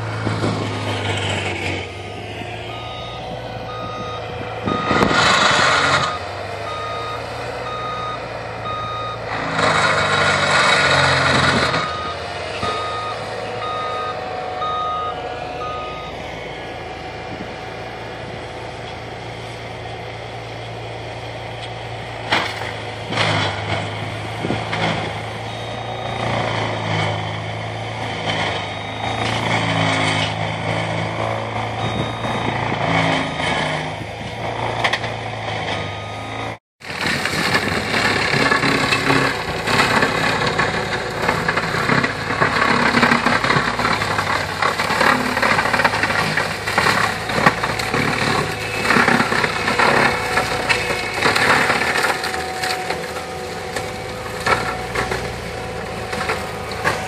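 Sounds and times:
diesel engine hum: 0.0s - 57.0s
back-up alarm beeping: 2.0s - 9.4s, 10.9s - 16.5s, 25.4s - 26.9s, 28.6s - 30.4s, 31.7s - 33.8s, 35.8s - 36.6s.

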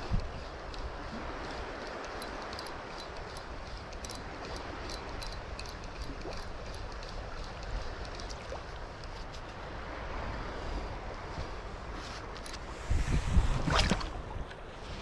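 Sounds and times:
faint high-pitched ticks: 0.0s - 9.5s
wind buffeting microphone: 0.0s - 15.0s.

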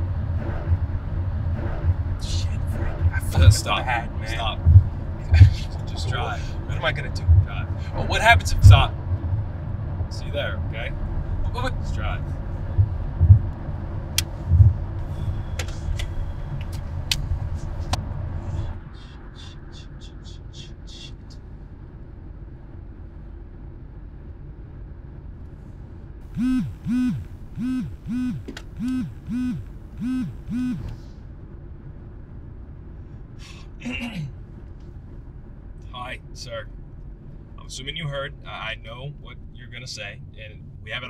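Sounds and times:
car interior rumble: 0.0s - 41.0s
phone pulsing tones: 26.3s - 30.9s
high electronic pips: 26.3s - 31.0s.

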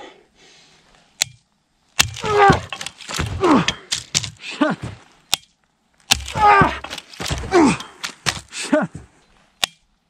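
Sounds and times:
man groaning with effort: 2.2s - 4.8s, 6.2s - 9.0s.

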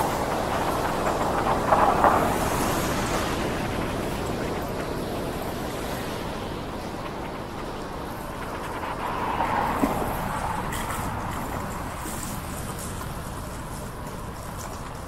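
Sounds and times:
tyres hissing on wet pavement: 0.0s - 6.7s, 8.0s - 15.0s
wind on microphone: 0.0s - 15.0s.

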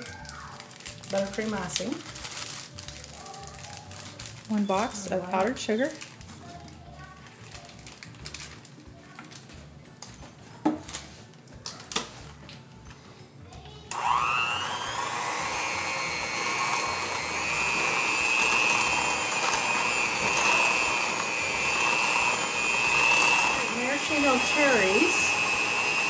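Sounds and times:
electric hand mixer whining: 13.9s - 26.0s.

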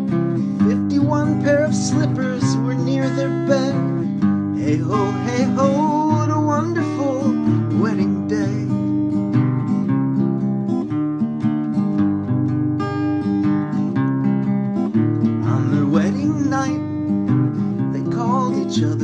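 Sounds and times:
acoustic guitar strumming: 0.0s - 19.0s
man singing: 0.6s - 8.8s, 15.4s - 16.9s, 17.9s - 19.0s.

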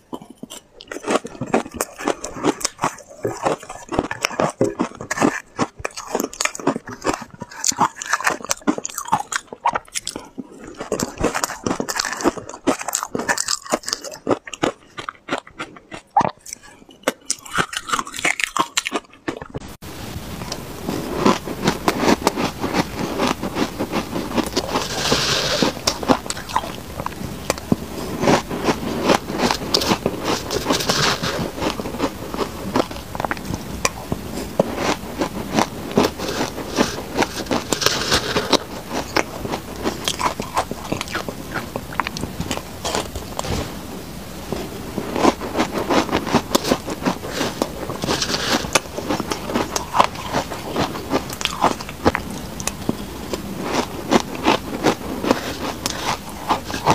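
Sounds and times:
chewing crunchy ice: 0.0s - 19.7s, 20.4s - 43.8s, 44.4s - 56.9s
steady background hiss: 19.8s - 56.9s.

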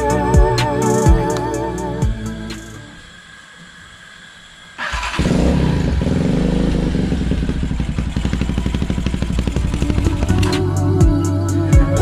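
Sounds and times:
small bike engine running: 4.8s - 11.5s.

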